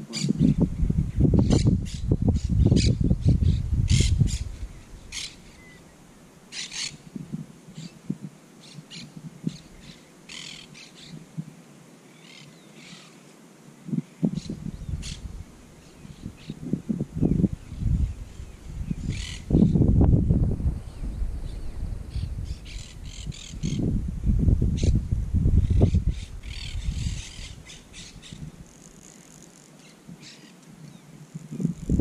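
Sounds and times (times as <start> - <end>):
birds calling: 1.4 - 7.1, 8.6 - 11.2, 17.2 - 20.0, 20.8 - 23.9, 25.6 - 31.7.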